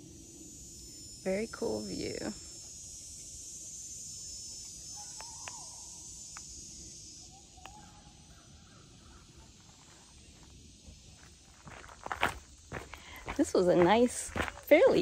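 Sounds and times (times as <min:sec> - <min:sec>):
high hiss: 0:00.0 - 0:11.7
bird calls: 0:05.0 - 0:06.0, 0:07.2 - 0:09.7.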